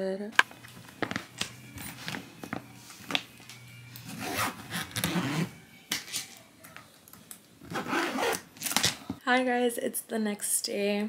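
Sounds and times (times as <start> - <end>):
suitcase zipper pulled: 4.0 - 5.6, 7.6 - 9.0.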